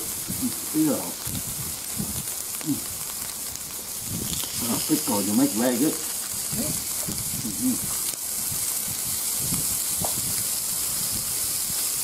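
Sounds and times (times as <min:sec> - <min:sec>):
meat and shrimp sizzling on grill: 0:00.0 - 0:12.0.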